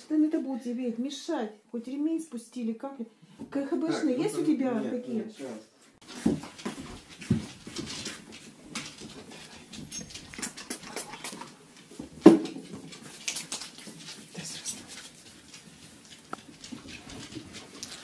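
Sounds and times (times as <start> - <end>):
dog claws clicking on hard floor: 6.1 - 18.0.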